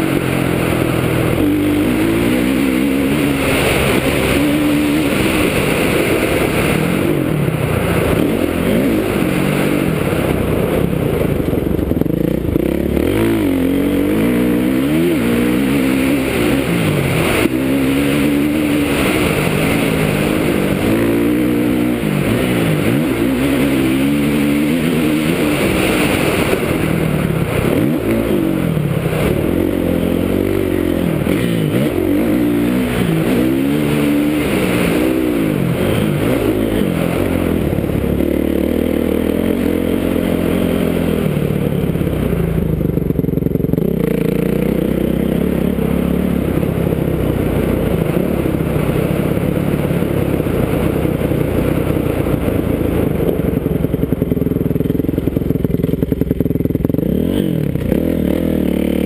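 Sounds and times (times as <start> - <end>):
motocross bike engine revving: 0.0 - 59.0.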